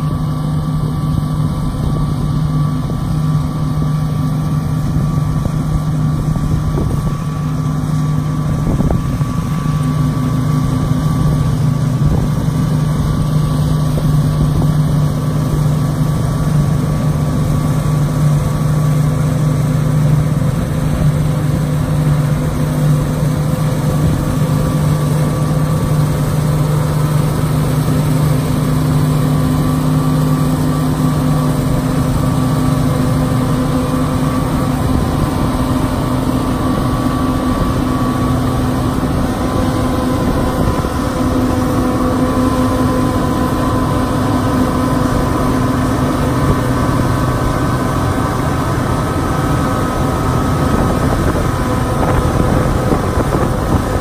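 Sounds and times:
combine harvester engine drone: 0.0 - 54.0
constant low hum: 0.0 - 54.0.

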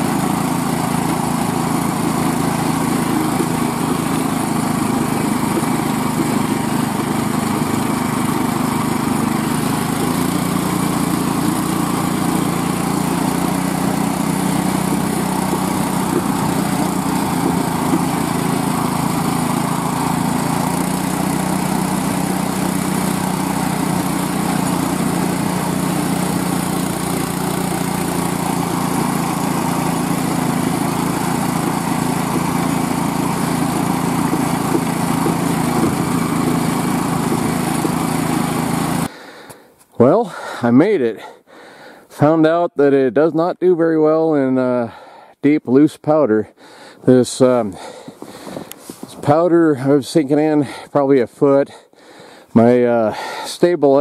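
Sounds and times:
small gas engine running: 0.0 - 40.6, 44.2 - 45.3, 46.4 - 54.0.

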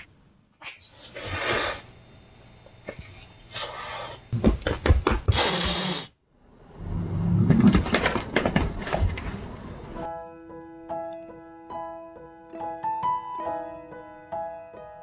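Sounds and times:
cats scuffling on sofa: 7.5 - 10.1
soft piano music: 10.0 - 15.0.

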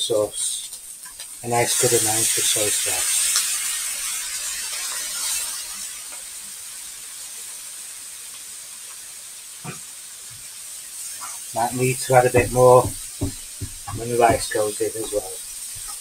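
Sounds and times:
food sizzling in a pan: 0.0 - 16.0
light knock: 12.4 - 14.5.

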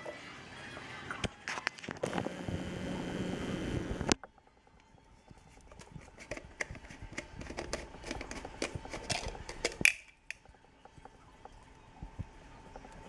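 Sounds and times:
turtle claws clicking on plastic: 5.5 - 11.2.

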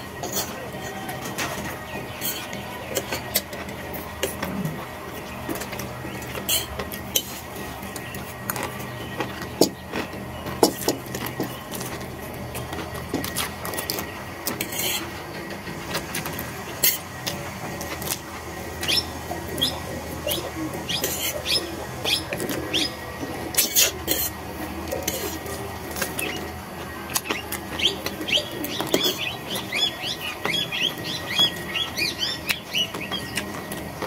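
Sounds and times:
people slurping and chewing: 0.0 - 34.0.

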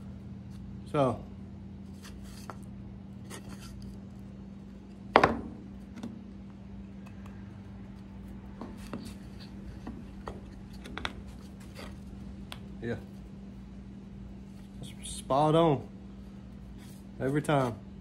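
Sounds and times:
wooden discs knocking and rubbing: 8.0 - 12.7.

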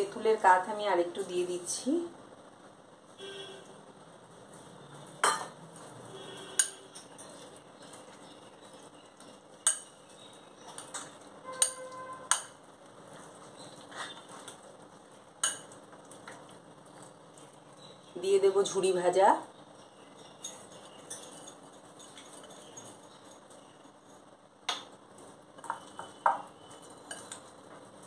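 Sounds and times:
spoon clinking against glass: 11.4 - 12.6, 20.2 - 23.4, 25.6 - 27.5
spoon scraping in glass bowl: 20.1 - 24.2.

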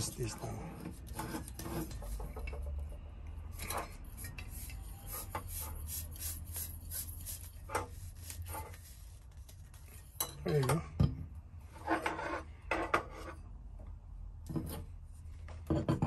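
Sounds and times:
hands rubbing on cylinder: 4.0 - 10.2.

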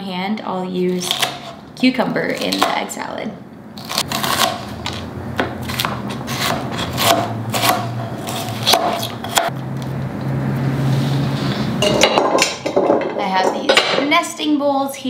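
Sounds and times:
knife chopping on cutting board: 3.9 - 9.5.

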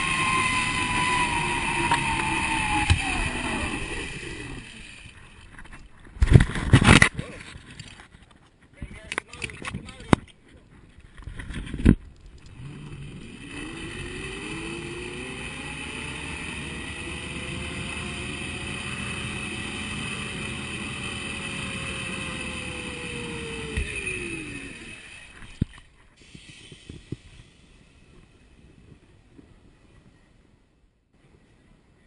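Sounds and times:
zip line pulleys whining on cable: 0.0 - 5.3, 12.5 - 28.6.

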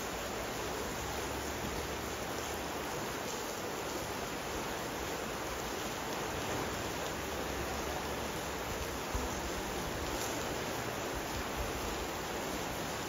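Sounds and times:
rushing water hiss: 0.0 - 13.0.

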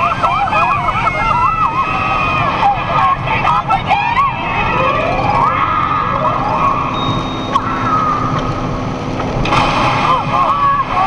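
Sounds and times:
road and engine rumble: 0.0 - 11.0
smooth siren-like tones: 4.2 - 8.4.

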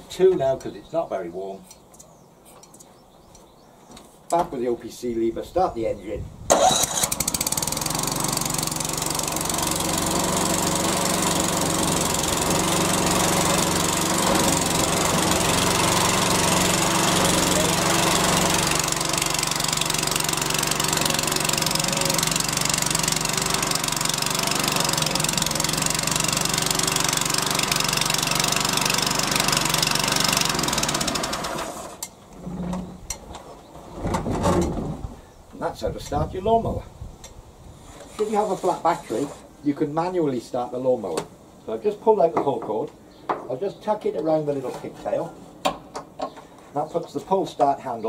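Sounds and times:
lawn mower engine running: 6.5 - 32.1.

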